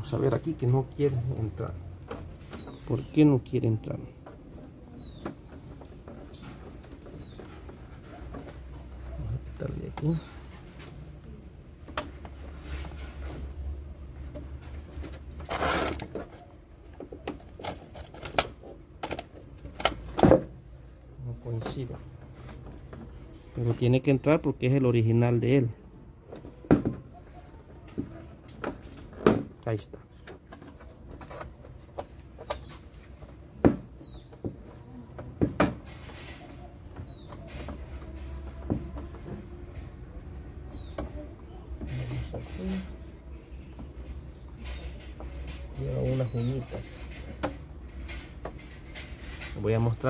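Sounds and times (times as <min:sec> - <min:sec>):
scraping rustle: 0:12.1 - 0:20.1, 0:27.2 - 0:50.0.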